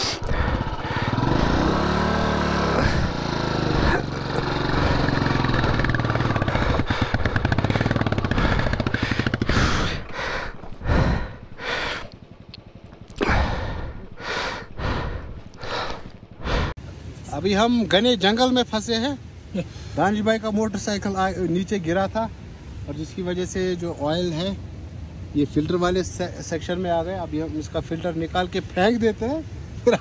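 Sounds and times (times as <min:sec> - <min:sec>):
motorcycle engine revving: 0:00.0 - 0:16.7.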